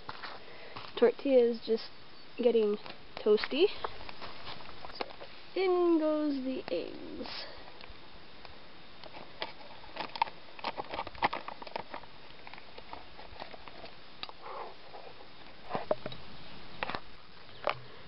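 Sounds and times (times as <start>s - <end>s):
oil popping and crackling: 9.0s - 14.4s.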